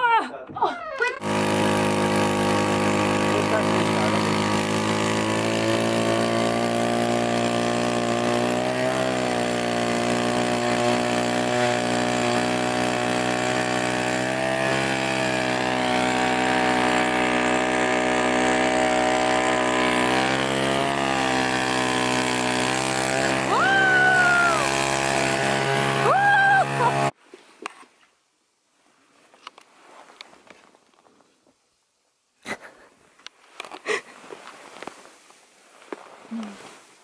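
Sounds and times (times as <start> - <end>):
powered ice auger drilling: 1.1 - 27.2
person calling out: 23.5 - 24.7.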